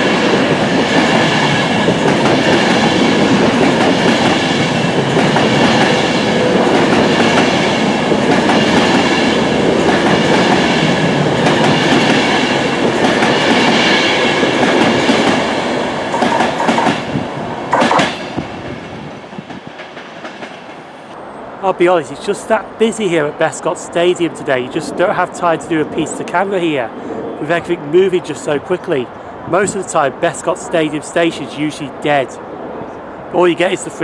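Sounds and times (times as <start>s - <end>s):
train wheels on rail: 0.0s - 21.2s
sharp knocks: 17.7s - 18.3s.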